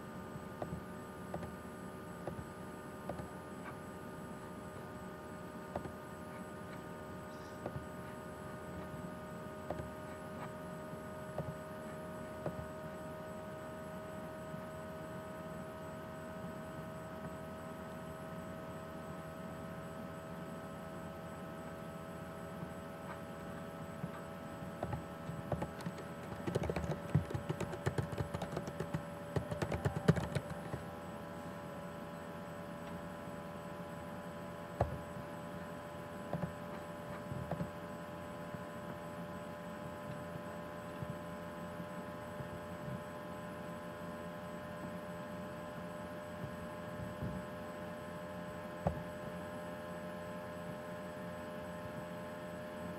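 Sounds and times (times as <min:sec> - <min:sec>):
electrical hum: 0:00.0 - 0:52.9
keyboard typing: 0:24.8 - 0:30.9.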